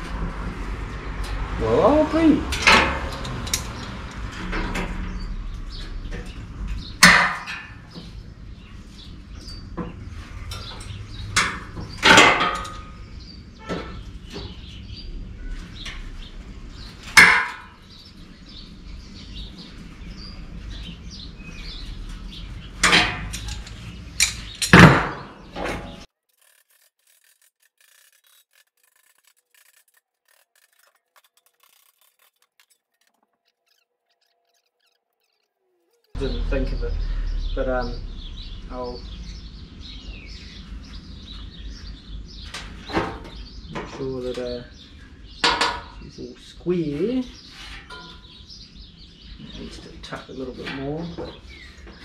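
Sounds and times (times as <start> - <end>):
sharp metal knocks: 2.5 - 5.2, 6.1 - 8.0, 10.6 - 13.0, 17.0 - 17.8, 22.8 - 26.0
tools scraping sheet metal: 25.6 - 36.2.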